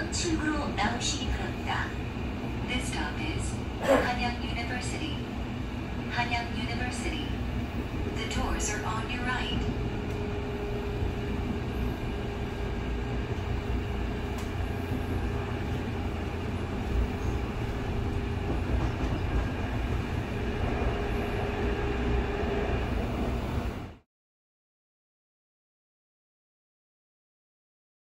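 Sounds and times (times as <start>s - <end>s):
train wheels rumbling on track: 0.0s - 24.0s.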